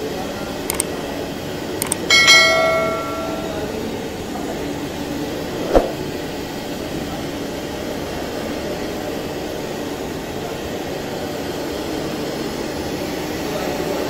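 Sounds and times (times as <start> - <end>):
short thump: 5.6 - 6.1.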